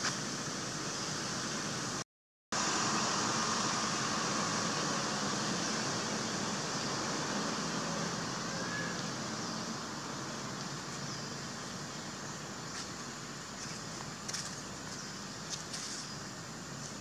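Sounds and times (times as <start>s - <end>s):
forest hiss: 0.0s - 2.0s, 2.6s - 17.0s.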